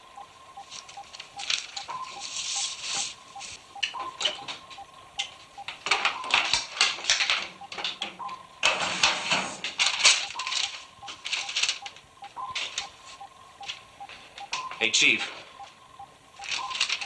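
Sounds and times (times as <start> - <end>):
regular soft beep: 0.0 - 6.6, 7.4 - 8.6, 10.1 - 17.0
faint steady tone: 0.0 - 17.0
rapid clattering clicks and hiss: 5.2 - 14.6.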